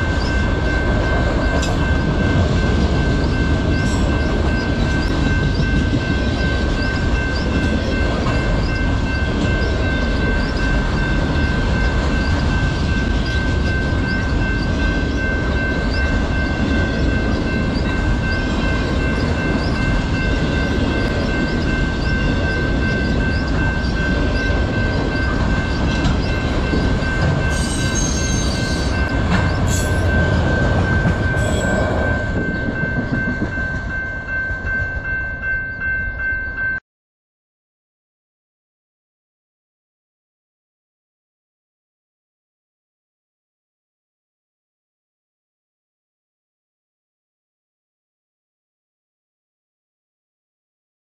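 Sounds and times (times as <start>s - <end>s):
freight train rumble and wheel clatter: 0.0s - 36.8s
railroad crossing bell ringing: 0.0s - 36.8s
high wheel squeals: 25.2s - 32.8s.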